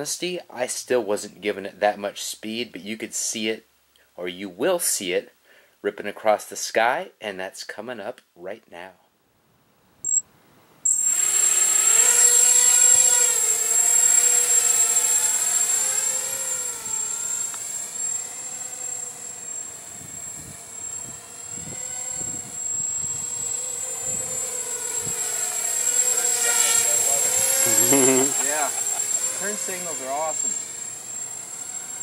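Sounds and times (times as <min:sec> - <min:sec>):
steady high-pitched tone: 0:10.0 - 0:10.2, 0:10.9 - 0:11.9, 0:14.0 - 0:32.0
drone motors whining: 0:10.9 - 0:32.0.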